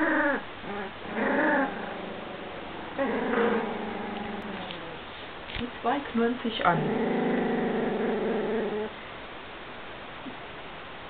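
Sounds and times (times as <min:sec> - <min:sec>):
puppies growling and whining: 0:00.0 - 0:05.1, 0:06.7 - 0:09.0.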